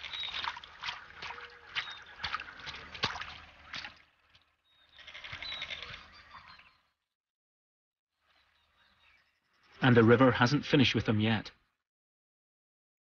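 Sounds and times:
water splashing in a pool: 0.0s - 6.2s.

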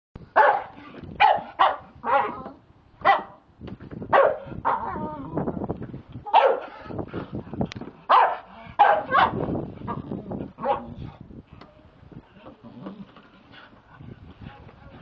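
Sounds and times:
dog barking: 0.4s - 2.4s, 3.0s - 3.4s, 4.1s - 4.9s, 6.3s - 6.7s, 8.1s - 9.4s, 10.6s - 11.0s.

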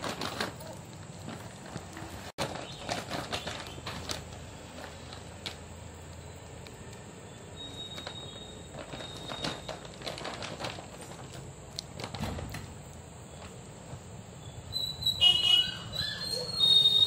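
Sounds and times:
loud high-pitched chirps: 14.4s - 17.0s.

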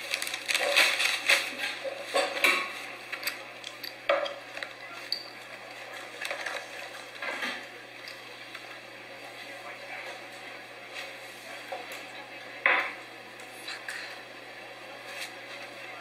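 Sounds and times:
plastic bag crinkling: 0.0s - 1.7s.

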